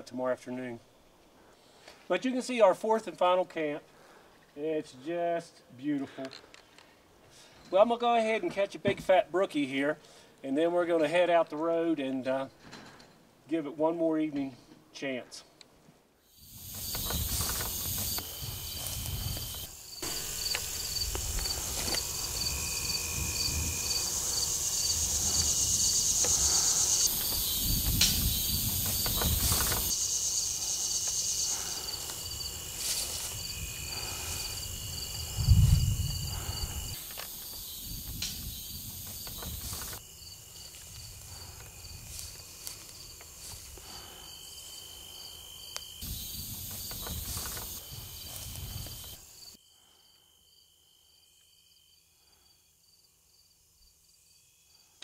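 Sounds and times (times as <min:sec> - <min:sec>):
insects chirping: 0:16.2 - 0:55.0
steady high buzz: 0:16.4 - 0:42.8
low rumbling noise: 0:20.0 - 0:27.0.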